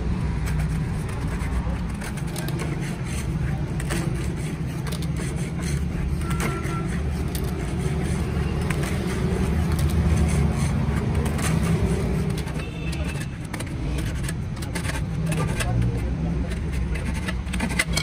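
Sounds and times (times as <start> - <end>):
metal file rasping: 0.5 - 18.0.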